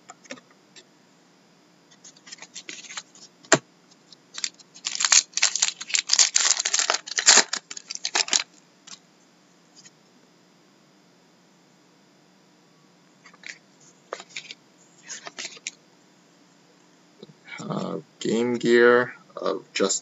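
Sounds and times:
wrapper tearing and crinkling: 4.4 - 8.5.

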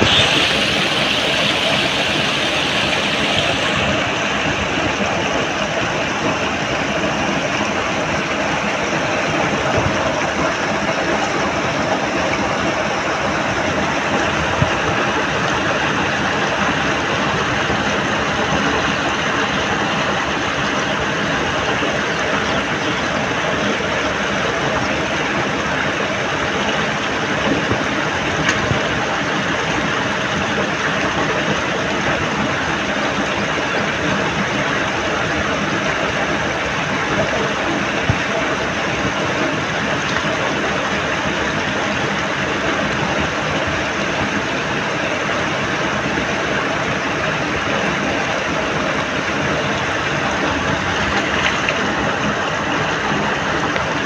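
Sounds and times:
water rushing: 0.0 - 54.0
small splashes and knocks: 50.8 - 51.9.

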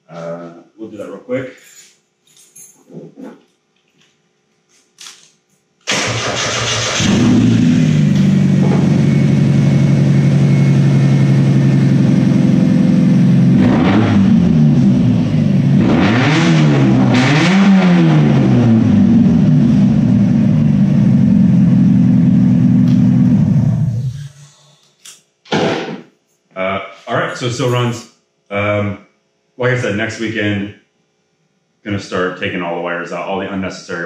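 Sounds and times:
car engine starting and idling: 5.9 - 24.2
engine throttle blips: 5.9 - 24.2.

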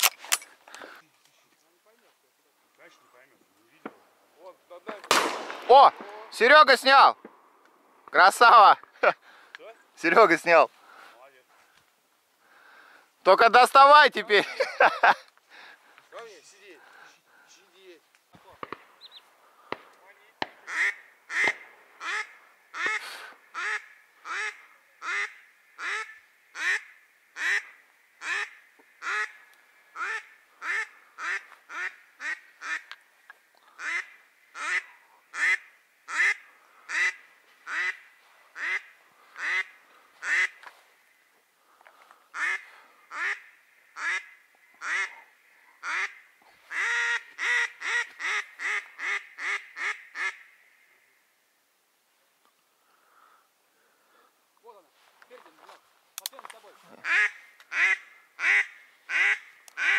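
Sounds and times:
duck quacking: 20.6 - 32.9, 33.7 - 40.7, 42.3 - 50.5, 57.0 - 59.9.

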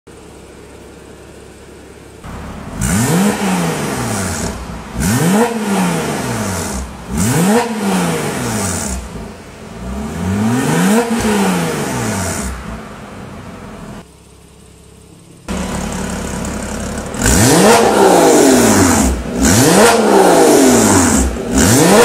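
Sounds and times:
car engine revving: 0.4 - 14.1, 15.4 - 22.0.

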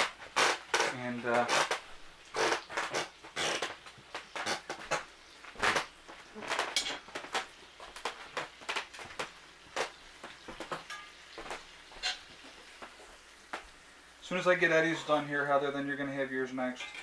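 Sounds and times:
metal utensil scraping skillet: 6.6 - 7.1, 10.8 - 11.2, 11.9 - 12.3, 16.7 - 17.0.

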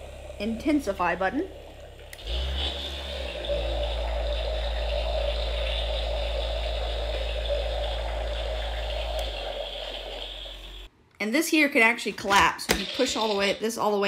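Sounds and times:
deep hum: 0.0 - 10.9
electronic rushing noise: 0.0 - 10.9.

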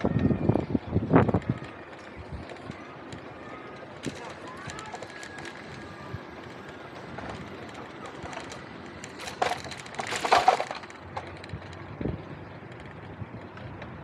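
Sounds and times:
bicycle road and wind noise: 0.0 - 14.0
crackling clatter: 0.0 - 14.0.

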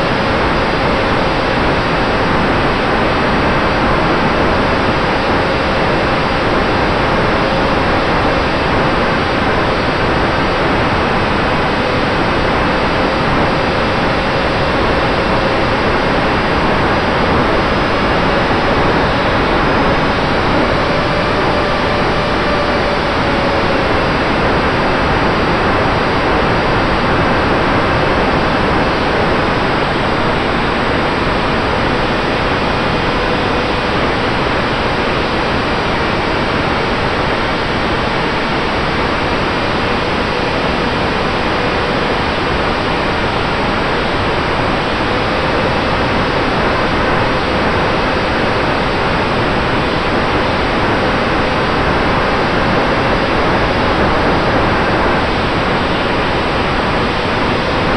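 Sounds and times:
rushing wind: 0.0 - 57.9
electric motor and propeller whine: 3.6 - 36.6.

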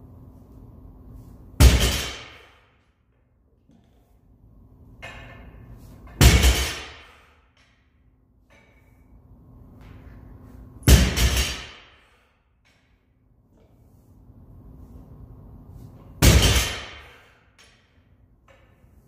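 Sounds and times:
barbell thudding on rubber floor: 6.1 - 7.2, 10.8 - 11.9.

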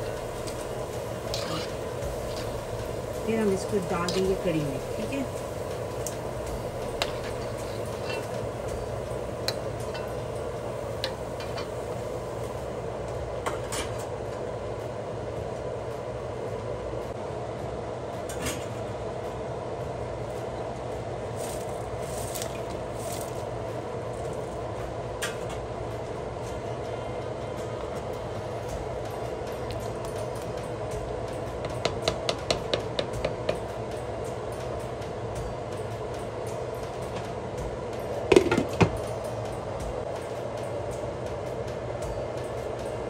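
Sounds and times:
metal utensils clinking: 0.0 - 5.4, 6.9 - 10.2
low kitchen hum: 0.0 - 43.0.

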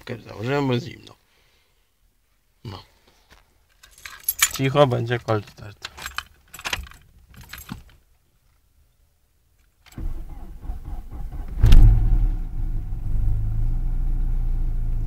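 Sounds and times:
engine starter cranking: 9.9 - 12.8
car engine starting and idling: 9.9 - 15.0.

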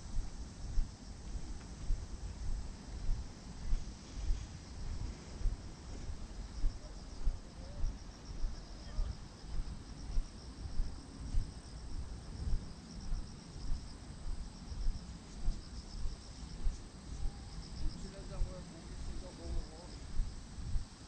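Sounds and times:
crickets chirping: 0.0 - 21.0
footsteps on path: 0.1 - 7.4.

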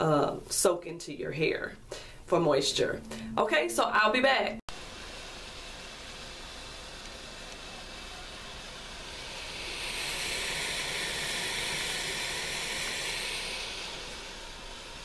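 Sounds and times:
hair steamer hissing: 4.7 - 15.0.

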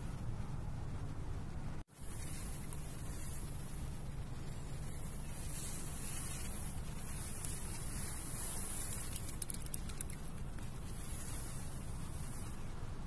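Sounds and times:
high hiss: 1.8 - 13.0
faint clicks: 7.2 - 11.0.

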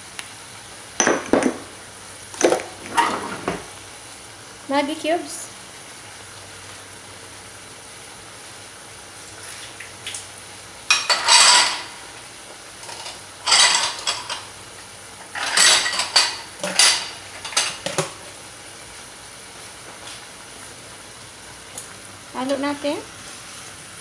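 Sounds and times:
faint sizzle from pot: 0.0 - 24.0
dishes and utensils clattering: 2.4 - 3.7, 10.9 - 12.0, 12.8 - 14.5, 15.2 - 18.2.

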